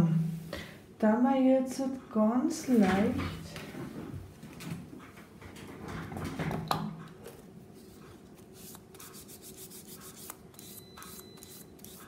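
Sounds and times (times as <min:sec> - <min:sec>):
pad rubbing a nail: 0:08.6 - 0:12.0.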